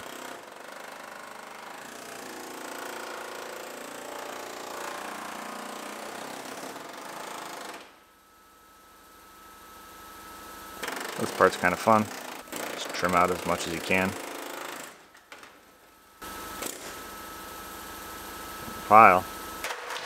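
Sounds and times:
pneumatic cutter chattering: 0:10.8 - 0:15.1, 0:16.2 - 0:17.8.

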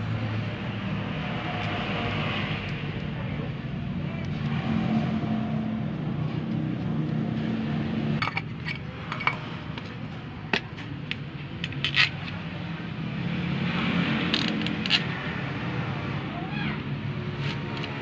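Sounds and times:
low engine-like hum: 0:00.0 - 0:18.0
metal clinks: 0:08.2 - 0:09.5.

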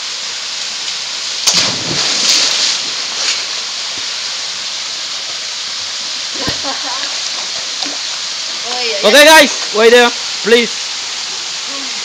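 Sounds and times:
waterfall pouring into pool: 0:00.0 - 0:12.0
body splashing into water: 0:01.4 - 0:03.5.

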